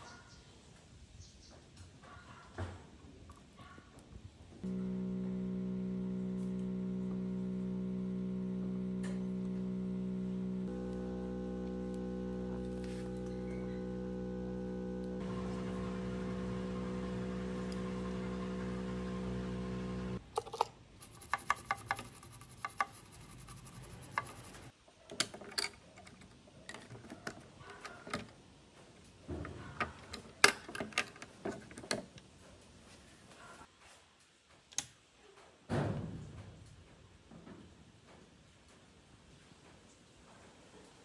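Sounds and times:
tools clicking on computer parts: 20.4 - 24.7.

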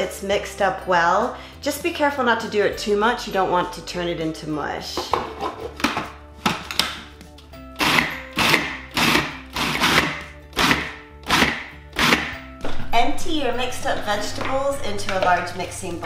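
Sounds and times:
background music: 0.0 - 16.0
food processor chopping: 7.8 - 12.4.

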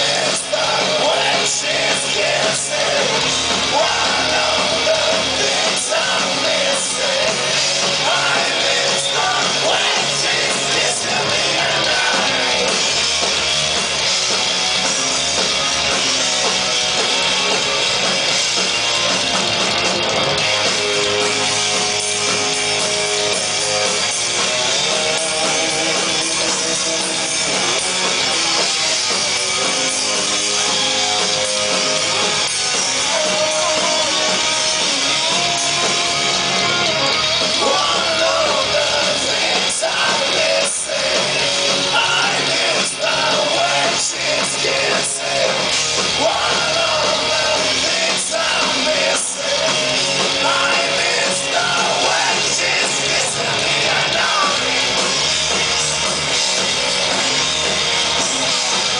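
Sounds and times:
man singing: 0.0 - 12.6, 32.8 - 35.2, 37.6 - 45.6, 46.2 - 55.0
drums: 0.0 - 58.9
electric guitars: 0.0 - 58.9.

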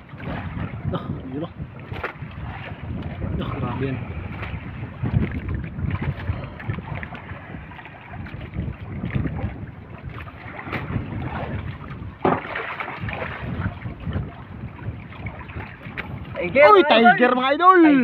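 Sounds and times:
water noise: 0.0 - 18.0
wind buffeting microphone: 0.0 - 18.0
knocks from boat hull: 12.2 - 13.1.

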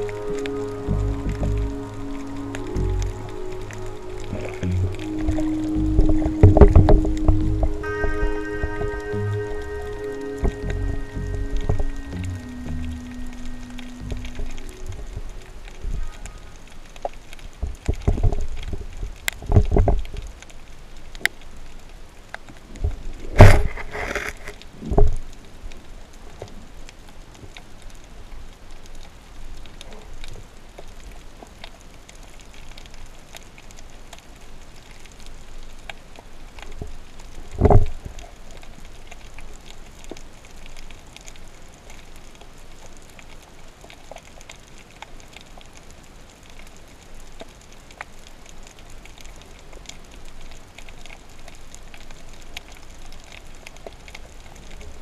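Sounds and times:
underwater fizzing crackle: 0.0 - 55.0
dull low thump: 5.8 - 7.8.

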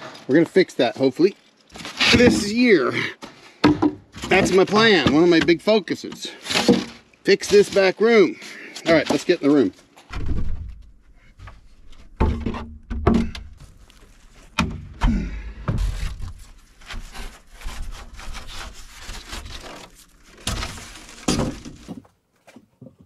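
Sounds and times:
wooden door knocking and thumping: 10.1 - 10.8, 12.2 - 13.6
foam board rubbing and scraping: 15.8 - 22.0.

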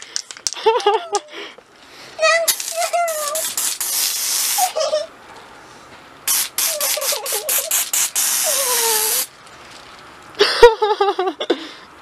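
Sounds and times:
aerosol string spray hissing: 2.5 - 4.8, 6.3 - 9.3
short aerosol squirts: 2.5 - 4.8, 6.3 - 9.3
girl squealing: 4.4 - 5.1, 6.7 - 7.8, 8.4 - 9.3.

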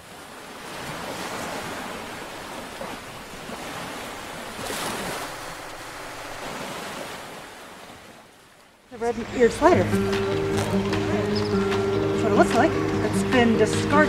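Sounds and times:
water washing and splashing: 0.0 - 8.1.

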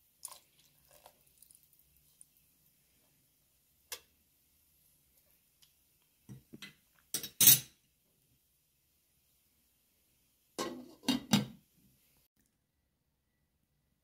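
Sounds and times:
metal spoon clinking cookware: 6.6 - 7.8.

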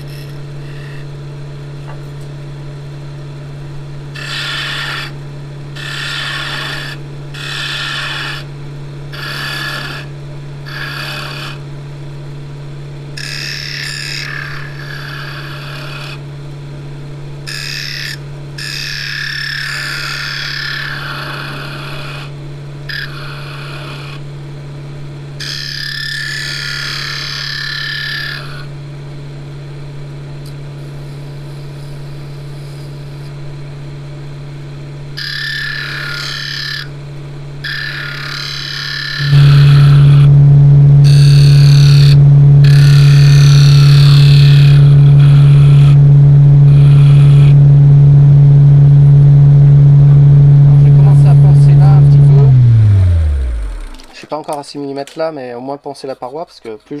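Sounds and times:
turning tool cutting wood: 4.2 - 5.2, 9.1 - 10.1, 13.2 - 16.2, 17.5 - 22.3, 37.6 - 40.3, 41.0 - 46.0, 50.7 - 54.3
wood lathe motor humming: 13.2 - 16.2, 17.5 - 21.7, 37.6 - 54.2.

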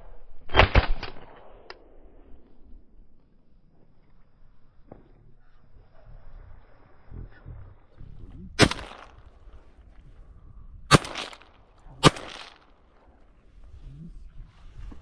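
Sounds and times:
shotgun shots with echo: 0.5 - 1.7, 8.6 - 9.3, 10.9 - 12.6.

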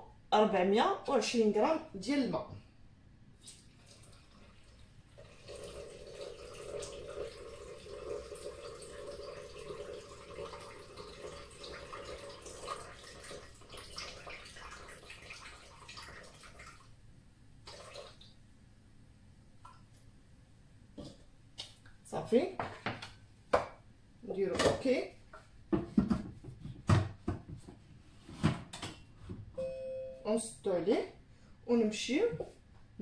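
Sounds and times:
water pouring into steel bowl: 3.6 - 16.8.

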